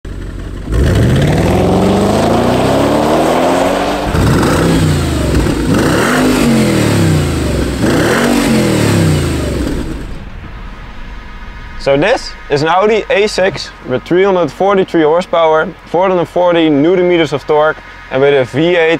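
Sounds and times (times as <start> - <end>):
car engine revving: 0.1 - 14.7.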